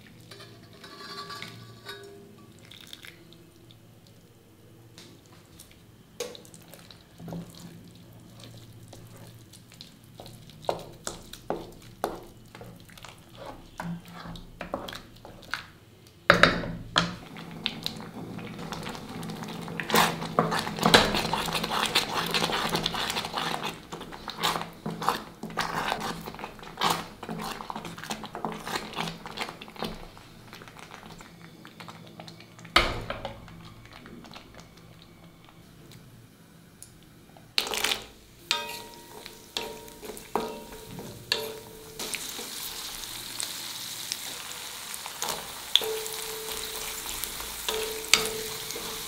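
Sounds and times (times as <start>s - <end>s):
ladle stirring thick food: 5.3s - 15.7s, 17.1s - 35.6s, 37.6s - 43.0s, 45.8s - 49.0s.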